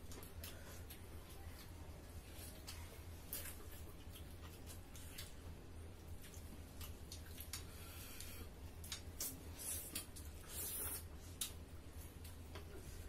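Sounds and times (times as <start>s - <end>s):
low steady hum: 0.0s - 13.0s
wet chewing and lip smacks: 2.6s - 11.6s.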